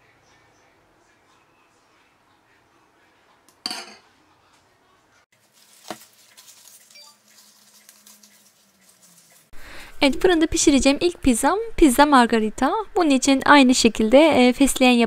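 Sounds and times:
metal spoon clinking on dish: 0:03.6 - 0:04.0.

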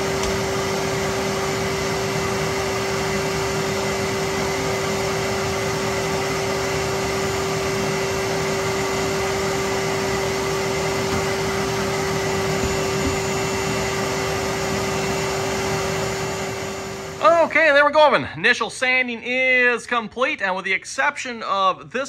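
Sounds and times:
electric sander running: 0:00.0 - 0:17.3.

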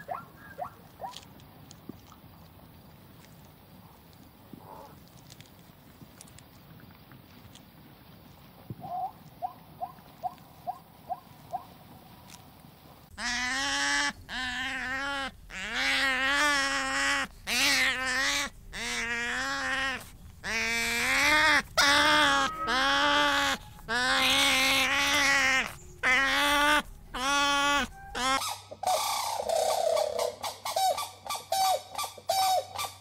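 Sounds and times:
sea otter crying: 0:13.2 - 0:28.6.

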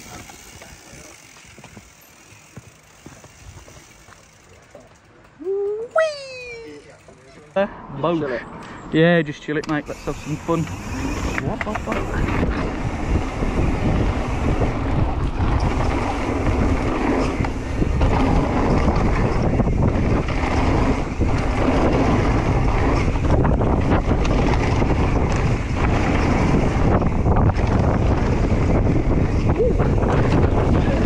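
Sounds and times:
bike knocks and rattles: 0:00.0 - 0:05.0, 0:10.6 - 0:31.0
wind buffeting microphone: 0:09.8 - 0:31.0
tyres rolling over dirt: 0:10.6 - 0:31.0.

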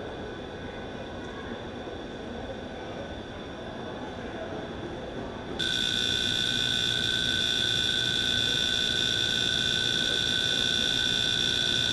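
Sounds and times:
low mechanical hum: 0:00.0 - 0:11.9
electronic warning tone: 0:05.6 - 0:11.9.

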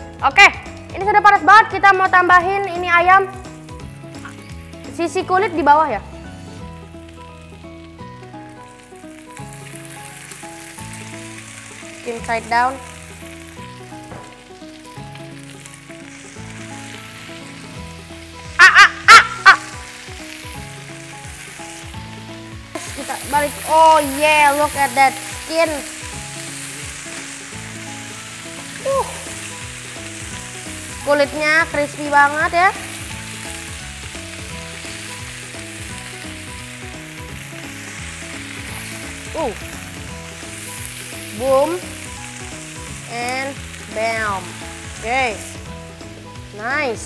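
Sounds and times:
chicken sizzling in a pan: 0:00.0 - 0:47.0
soft background music: 0:00.0 - 0:47.0
person laughing: 0:18.6 - 0:19.8.

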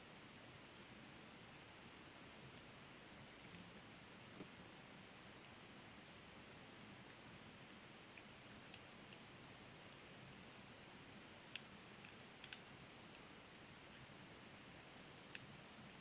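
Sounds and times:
low steady hiss: 0:00.0 - 0:16.0
knitting needles clicking: 0:11.5 - 0:13.2.

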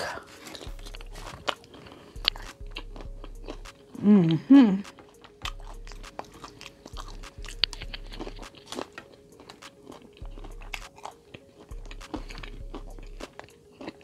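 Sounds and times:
chewing food with crunches: 0:00.0 - 0:14.0
wet mouth clicks: 0:00.3 - 0:14.0
background beat with deep bass: 0:00.6 - 0:13.6.

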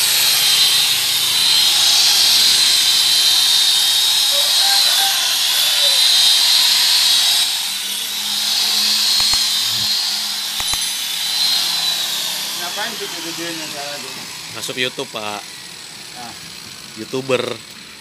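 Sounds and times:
car polisher whining: 0:00.0 - 0:18.0
clicks: 0:09.1 - 0:09.5, 0:10.6 - 0:10.9.

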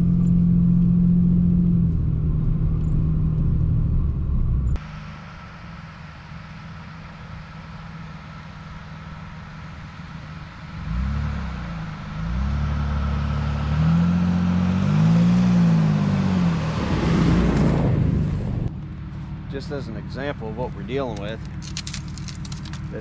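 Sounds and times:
pickup truck engine revving: 0:04.8 - 0:18.7.

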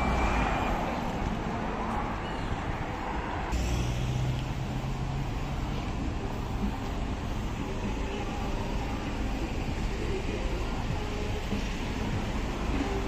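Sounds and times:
road traffic going by: 0:00.0 - 0:13.0
low engine hum: 0:03.0 - 0:13.0.

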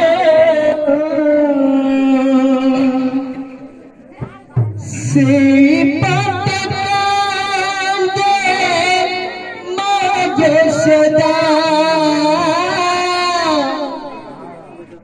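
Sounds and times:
man singing into microphone: 0:00.0 - 0:03.6, 0:04.8 - 0:14.4
drum and cymbal percussion: 0:04.2 - 0:07.1.

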